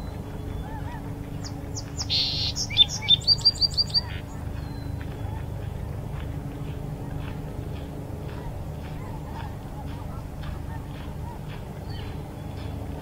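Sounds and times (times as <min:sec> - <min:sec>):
sparrow singing: 0:00.0 - 0:05.8
steady low rumble: 0:00.0 - 0:13.0.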